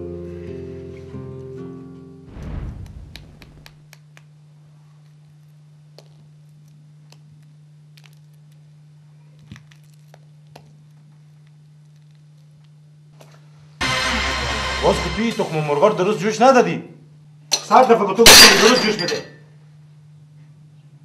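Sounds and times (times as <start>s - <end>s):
low hum: 2.2s - 4.0s, 13.8s - 16.2s.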